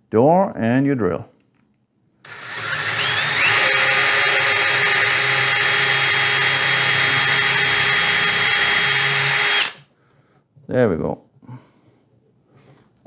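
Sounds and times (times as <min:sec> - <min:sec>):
cordless drill motor whine: 0:02.2 - 0:09.8.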